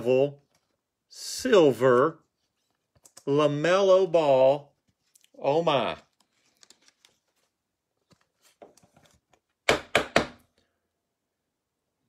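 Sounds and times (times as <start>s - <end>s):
sharp plastic knocks: 9.6s - 10.4s.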